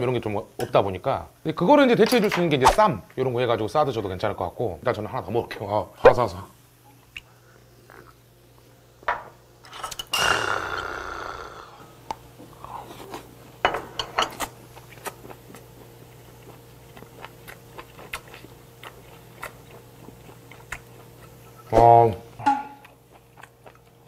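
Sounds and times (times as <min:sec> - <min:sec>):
low steady hum: 0:00.0 - 0:24.0
chewing food: 0:14.4 - 0:21.7, 0:22.8 - 0:24.0.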